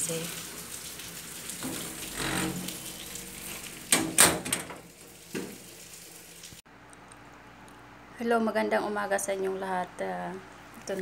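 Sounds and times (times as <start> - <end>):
rain hissing: 0.0 - 4.1
door being handled and shut: 3.9 - 4.8.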